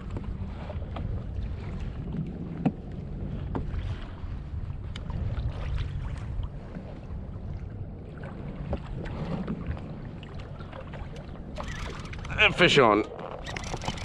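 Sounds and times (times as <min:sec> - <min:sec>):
waves lapping against a hull: 0:00.0 - 0:14.0
wind buffeting microphone: 0:00.0 - 0:14.0
faint clicks: 0:11.1 - 0:12.4, 0:13.0 - 0:14.0.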